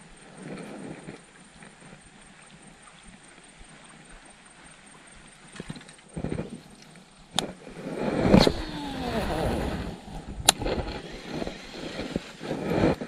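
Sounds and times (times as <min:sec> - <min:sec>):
faint outdoor background: 0:00.0 - 0:13.0
sharp click: 0:10.4 - 0:11.4.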